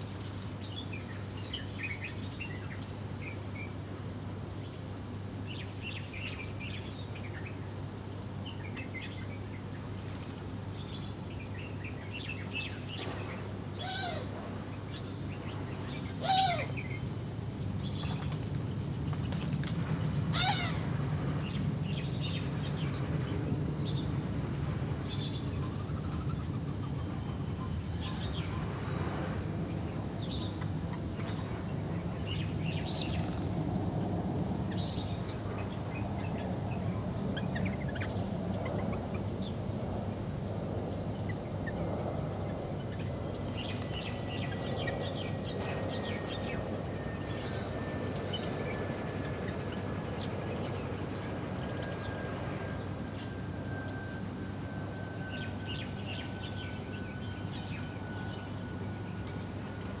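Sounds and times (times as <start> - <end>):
small birds chirping: 34.6 - 40.0, 40.6 - 53.4.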